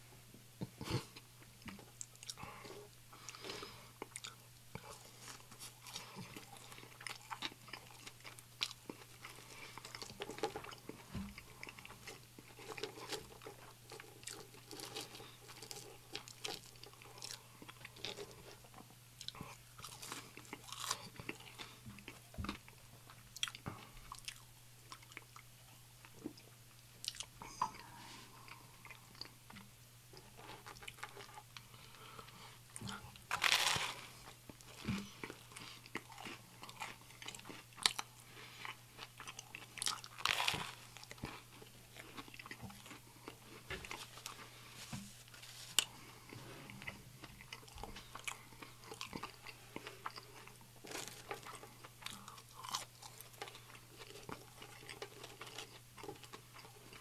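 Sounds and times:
man chewing sandwich: 0.6 - 57.0.

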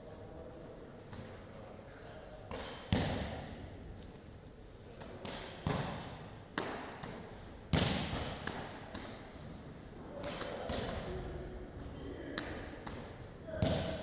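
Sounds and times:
ball slapping into hands: 2.5 - 3.5, 5.0 - 9.3, 10.2 - 11.2, 12.3 - 14.0
ball thudding against wall: 13.6 - 14.0.

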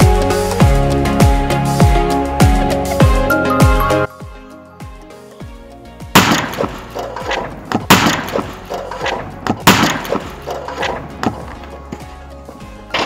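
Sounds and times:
electronic background music: 0.0 - 13.0
firecracker bang: 6.2 - 7.0, 7.8 - 8.6, 9.6 - 10.4
loud cracks: 6.2 - 11.5.

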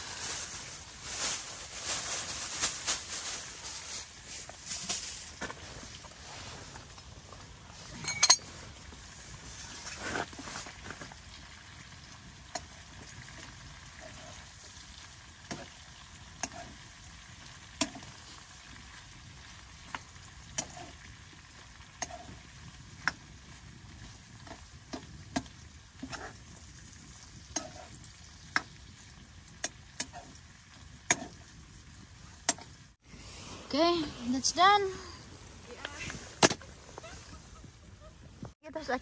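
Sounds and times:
food sizzling in a pan: 0.0 - 4.3, 8.4 - 36.0.

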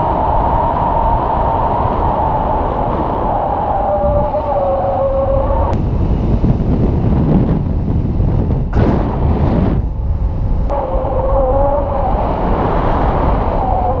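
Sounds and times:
wind buffeting microphone: 0.0 - 14.0
wavering whistle: 3.2 - 5.8.

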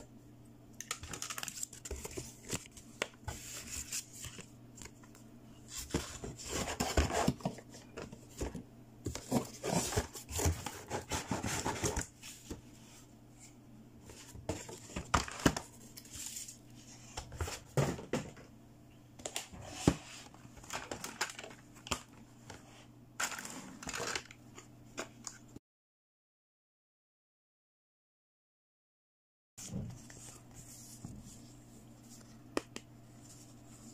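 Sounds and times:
plastic scraping and rustling: 5.7 - 12.6.

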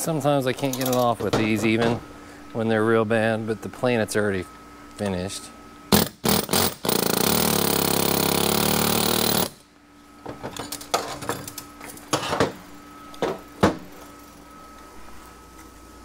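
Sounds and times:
pneumatic air hammer: 5.9 - 9.7.

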